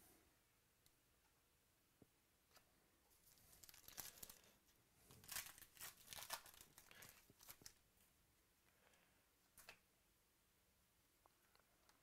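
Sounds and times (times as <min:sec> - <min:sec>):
foil wrapper tearing and crinkling: 0:03.4 - 0:07.8.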